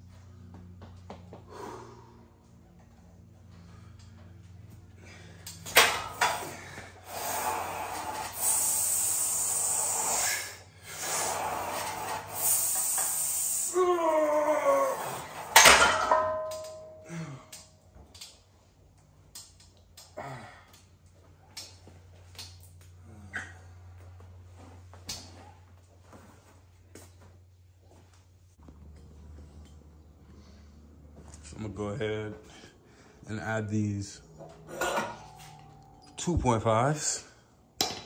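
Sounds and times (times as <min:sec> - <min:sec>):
forceful breaths: 0:01.4 - 0:02.7, 0:03.4 - 0:13.8
barbell clanking: 0:05.6 - 0:06.6, 0:15.4 - 0:17.1, 0:34.4 - 0:36.2
iron plates ringing: 0:15.6 - 0:17.4, 0:34.0 - 0:38.0.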